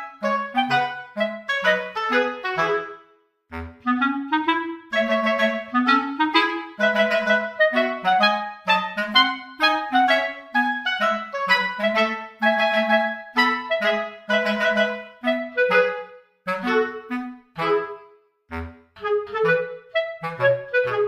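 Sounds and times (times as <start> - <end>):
bouncy woodwind melody: 0.0 - 21.0.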